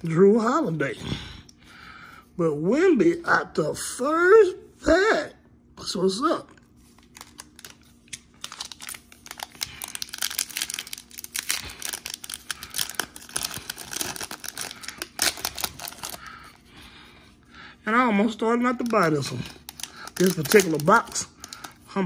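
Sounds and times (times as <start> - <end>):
foil wrapper crinkling and tearing: 6.8 - 16.7, 18.3 - 22.0.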